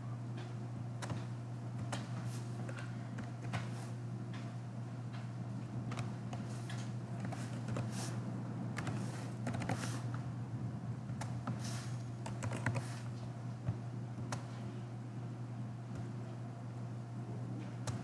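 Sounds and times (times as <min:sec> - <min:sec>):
low hum: 0:04.0 - 0:12.4
keyboard typing: 0:05.9 - 0:08.1, 0:08.8 - 0:10.1, 0:12.2 - 0:13.1.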